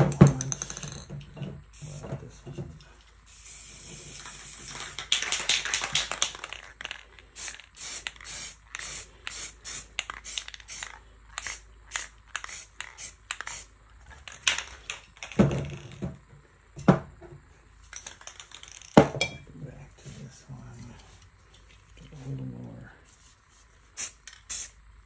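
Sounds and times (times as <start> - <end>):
spray paint can hissing: 1.7 - 2.0, 3.3 - 13.7, 23.2 - 24.8.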